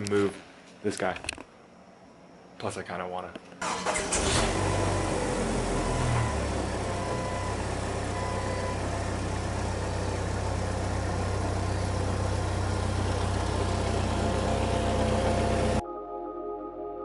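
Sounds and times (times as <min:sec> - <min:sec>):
car engine idling: 0:03.7 - 0:15.8.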